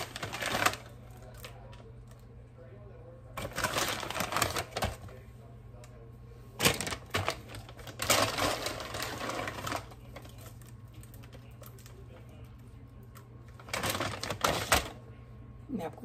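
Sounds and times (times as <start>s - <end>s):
plastic bag crinkling: 0.0s - 2.2s, 3.4s - 5.2s, 6.6s - 15.0s.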